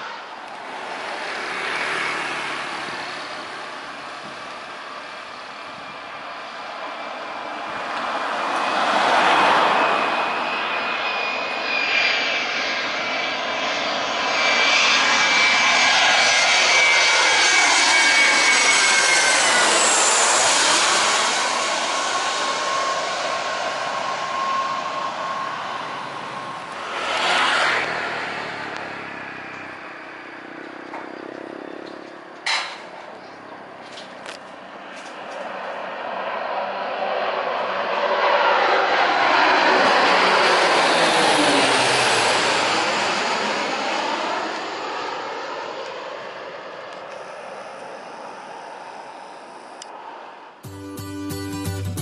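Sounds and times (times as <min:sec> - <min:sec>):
jet airliner passing overhead: 0:00.0 - 0:50.6
rush of noise: 0:12.9 - 0:31.8.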